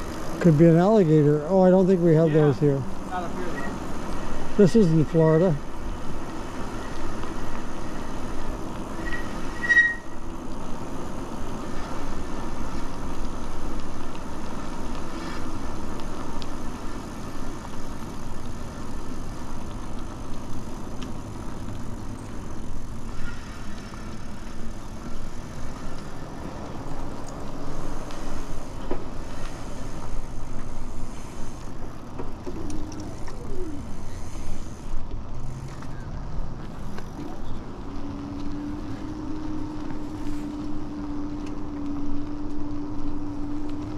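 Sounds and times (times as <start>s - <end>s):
bike tyres rolling on pavement: 0.0s - 43.9s.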